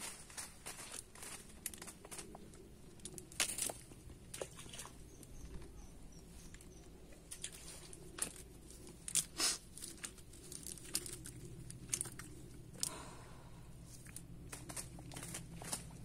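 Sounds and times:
leaves brushing: 0.0s - 2.5s, 13.8s - 16.0s
net rustling and crinkling: 7.3s - 12.9s, 13.9s - 16.0s.

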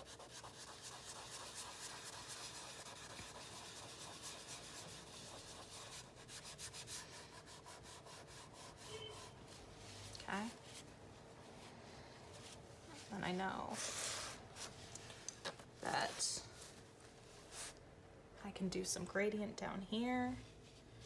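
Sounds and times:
cloth rubbing charcoal on paper: 0.0s - 10.9s.

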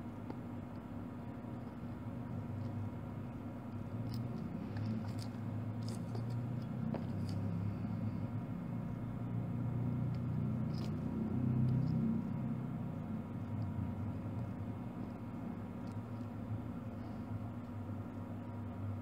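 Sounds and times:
steady low hum: 0.0s - 19.0s
small clicks and scrapes: 3.7s - 7.7s, 10.1s - 12.3s.

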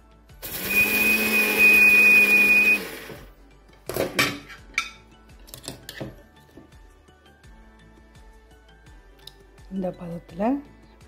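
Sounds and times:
mixer grinder whining: 0.4s - 3.3s.

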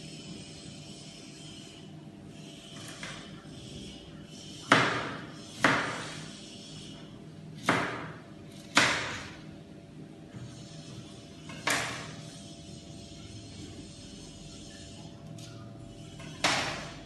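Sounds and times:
knife chopping on cutting board: 4.7s - 6.2s, 7.6s - 9.4s, 16.4s - 16.9s.

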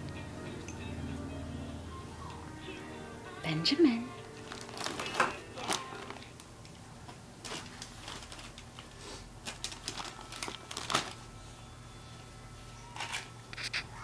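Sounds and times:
wrapping paper crinkling: 4.3s - 6.8s, 7.4s - 11.5s.

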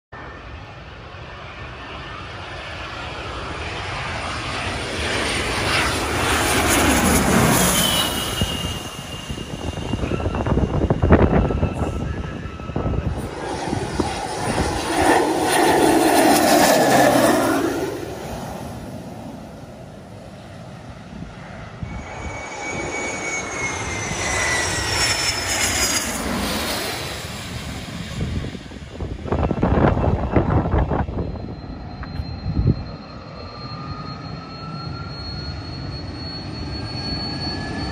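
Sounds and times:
jet engine noise passing overhead: 0.2s - 37.9s
rushing air noise: 6.0s - 20.1s, 20.8s - 32.9s.

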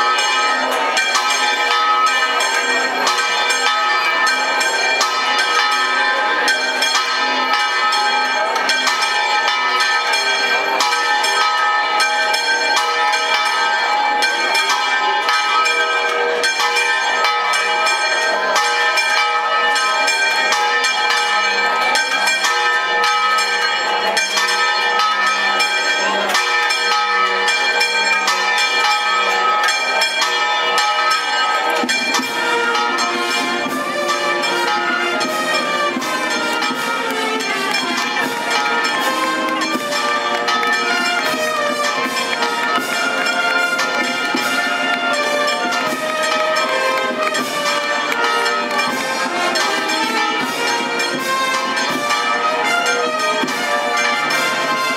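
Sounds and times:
church bells pealing: 0.0s - 54.9s.

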